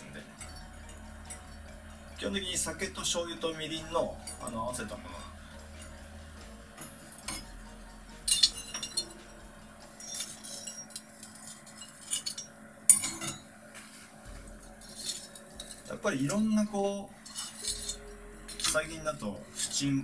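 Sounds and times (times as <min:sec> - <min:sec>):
metal skewers clinking on grill: 0:00.4 - 0:06.1, 0:08.2 - 0:09.3, 0:09.9 - 0:13.4, 0:14.8 - 0:20.0.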